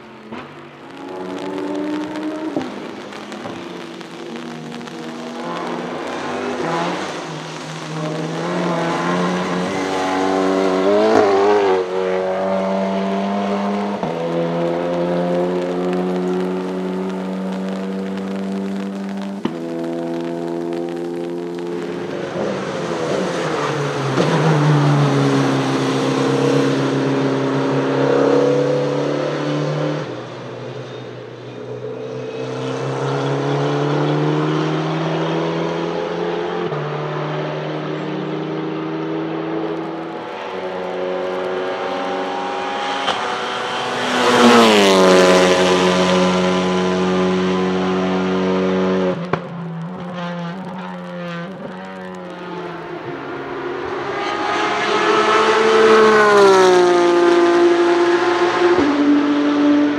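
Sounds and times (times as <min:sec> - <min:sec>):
race car accelerating with upshifts: 0:00.0 - 0:59.9
race car approaching: 0:00.0 - 0:59.9.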